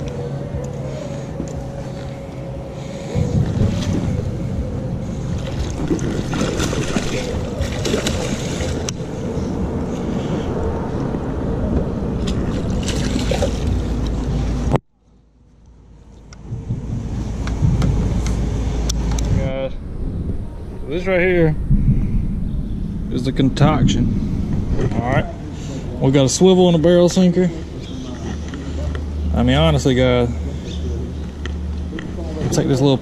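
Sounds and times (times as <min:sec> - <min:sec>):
water splashing against hull: 0:00.0 - 0:14.8
wind buffeting microphone: 0:00.0 - 0:14.8, 0:16.3 - 0:33.0.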